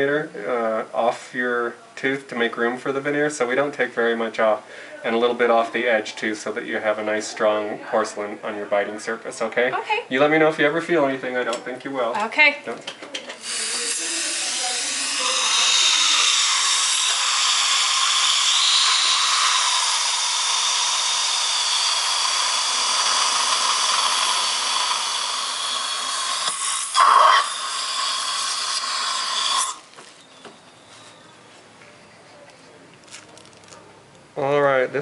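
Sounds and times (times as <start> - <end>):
dental drill whining: 13.3 - 31.4.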